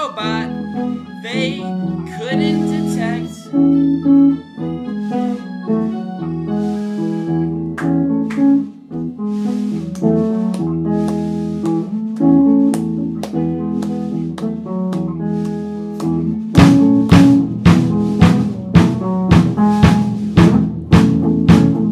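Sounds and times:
guitar sustained notes: 0.0s - 21.9s.

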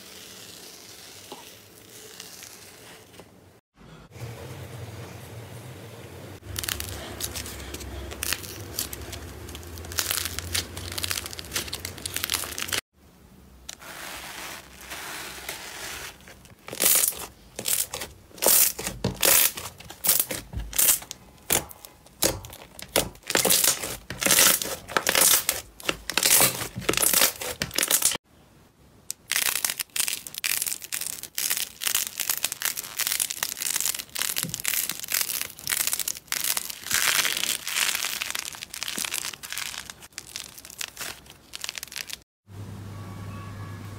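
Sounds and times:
sticky slime crackles and pops: 8.2s - 12.8s, 16.7s - 28.2s, 29.1s - 42.2s.

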